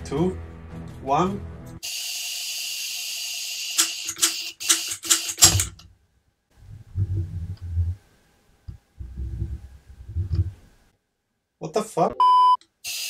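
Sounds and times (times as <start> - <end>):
torch trigger clicking: 3.8 - 5.9
low rumbling: 6.5 - 8.1, 8.7 - 10.8.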